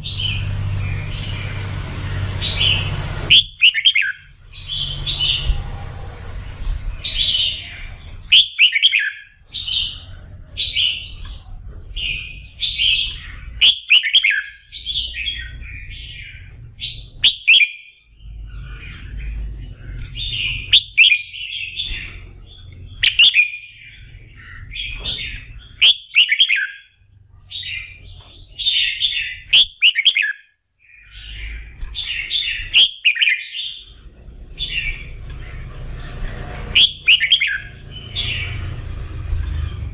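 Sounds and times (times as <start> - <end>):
low rumble: 0.0 - 3.6, 4.2 - 8.3, 18.1 - 20.8, 33.7 - 39.9
bird singing whistled phrases: 2.6 - 4.3, 7.4 - 9.9, 12.2 - 15.5, 16.9 - 18.0, 20.3 - 22.0, 23.0 - 23.8, 25.8 - 26.9, 28.7 - 30.4, 31.0 - 33.8, 36.7 - 38.5.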